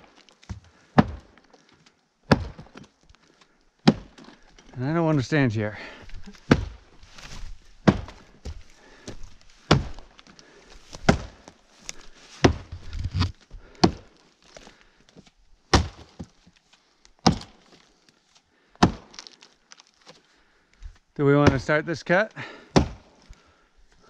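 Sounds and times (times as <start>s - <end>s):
axe chopping log: 0.5s - 1.4s, 2.3s - 2.9s, 3.8s - 4.3s, 6.3s - 6.8s, 7.8s - 8.3s, 9.6s - 10.1s, 10.9s - 11.5s, 12.4s - 14.1s, 15.7s - 16.4s, 17.2s - 17.7s, 18.8s - 19.3s, 21.4s - 21.8s, 22.7s - 23.2s.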